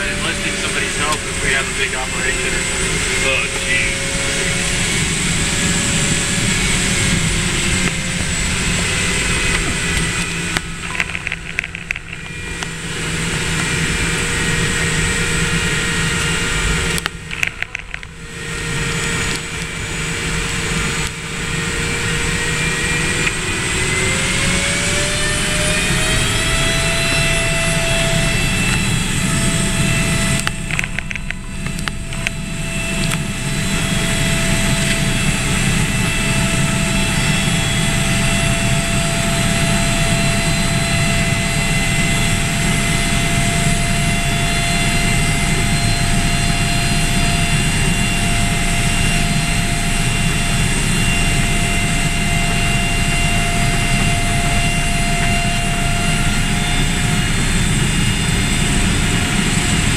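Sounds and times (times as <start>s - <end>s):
propeller plane engine drone: 0.0s - 59.9s.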